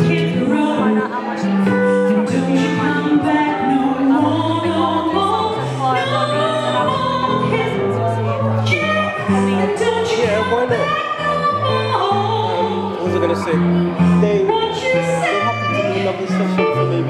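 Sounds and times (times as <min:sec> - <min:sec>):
woman singing jazz: 0:00.0 - 0:13.1, 0:14.5 - 0:17.0
electric guitar bass line: 0:00.0 - 0:17.0.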